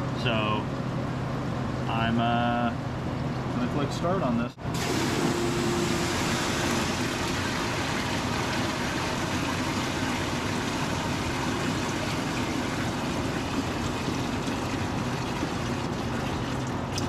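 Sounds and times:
machine pump running: 4.6 - 17.0
pumped water rushing: 4.7 - 17.0.

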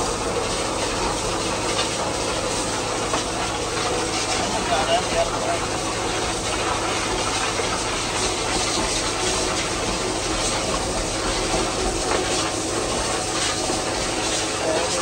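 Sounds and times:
low machine drone: 0.0 - 15.0
water jet spraying and splashing: 0.0 - 15.0.

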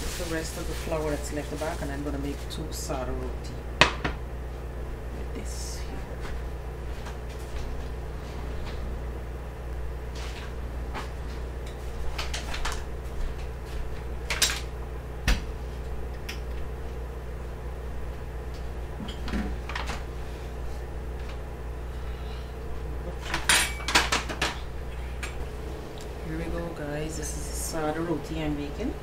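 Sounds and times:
flour bag rustling: 0.0 - 2.6
steady low hum: 0.0 - 29.0.

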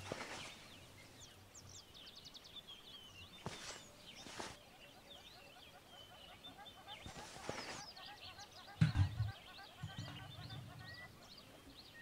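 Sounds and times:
brief rustles: 0.0 - 0.7, 3.4 - 4.6, 7.0 - 7.8
small birds chirping: 0.0 - 12.0.

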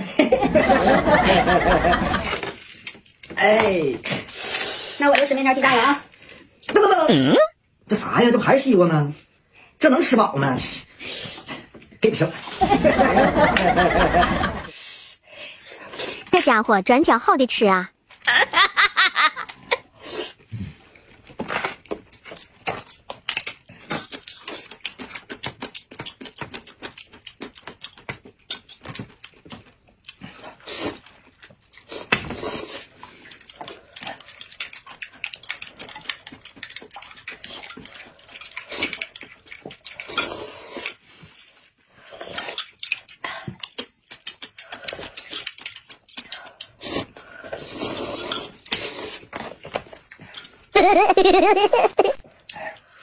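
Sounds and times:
noodles slurped and chewed: 15.6 - 16.5, 19.5 - 50.7, 52.2 - 53.0.

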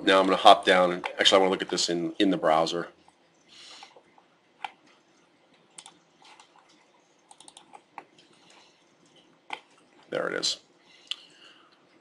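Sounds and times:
computer mouse clicks: 4.6 - 9.8
keyboard clicks: 5.6 - 9.8.

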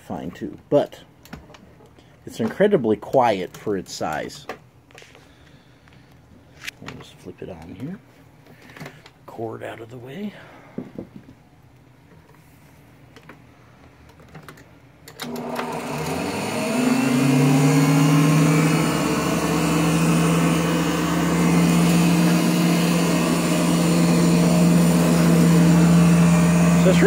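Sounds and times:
vacuum cleaner humming on carpet: 15.2 - 27.0.

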